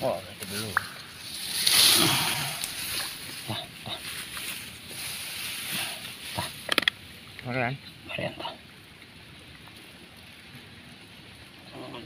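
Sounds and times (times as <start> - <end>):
rice stalks rustling: 0.4 - 6.8
muddy water splashing: 0.4 - 7.1.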